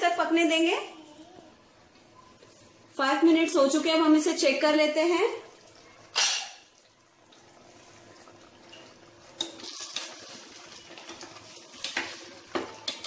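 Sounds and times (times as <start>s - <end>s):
meat sizzling in a pot: 3.5s - 13.0s.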